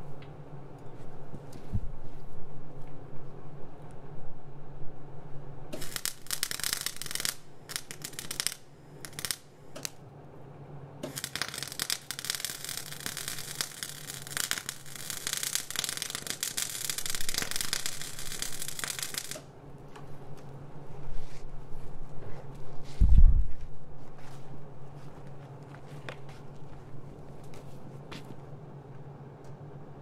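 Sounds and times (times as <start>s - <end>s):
welding arc crackling: 5.8s - 10.0s, 11.0s - 19.5s.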